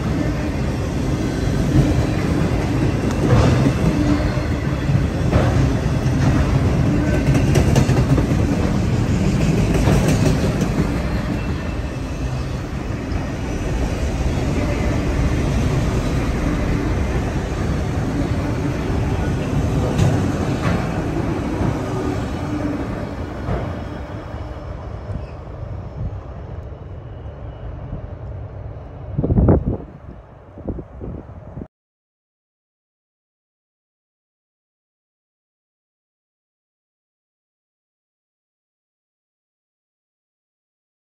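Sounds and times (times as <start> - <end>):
freight train rail rumble: 0.0 - 31.7
wheels clacking over rail joints: 16.3 - 24.1.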